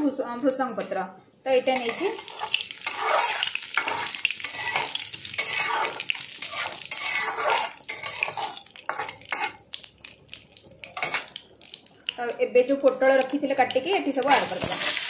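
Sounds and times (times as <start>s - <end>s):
metal spatula scraping pan: 1.8s - 9.6s
spices sizzling in hot oil: 1.8s - 15.0s.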